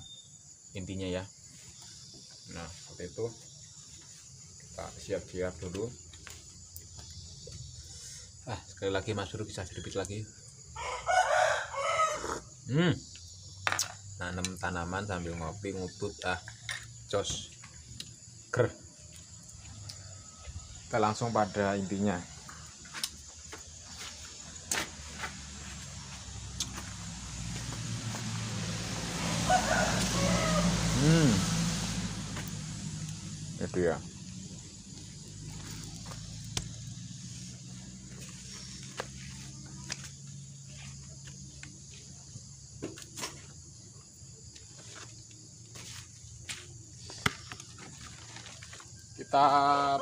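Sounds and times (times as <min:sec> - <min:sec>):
insects chirring: 0:00.0 - 0:50.0
vehicle engine humming: 0:22.4 - 0:42.8.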